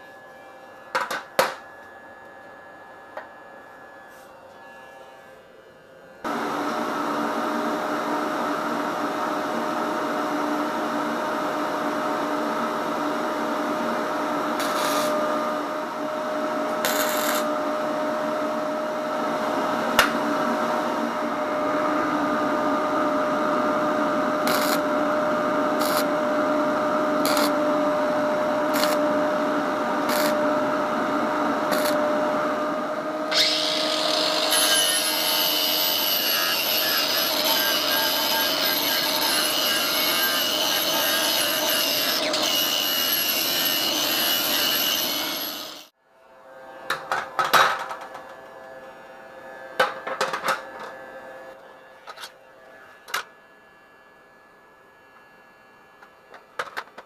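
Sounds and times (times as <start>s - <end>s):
electric hum: 6.1s - 34.5s
angle grinder cutting metal: 14.3s - 17.9s, 24.3s - 30.6s, 31.5s - 32.4s, 33.3s - 45.9s.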